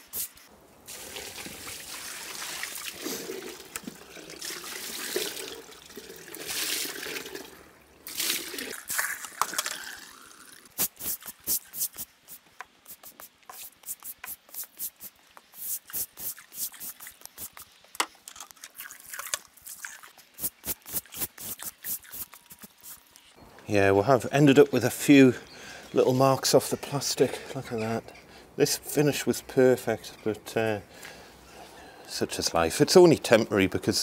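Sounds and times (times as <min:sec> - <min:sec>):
water splashing onto concrete: 0:00.9 - 0:07.4, 0:08.0 - 0:09.4
brush scrubbing wet concrete: 0:10.8 - 0:17.6.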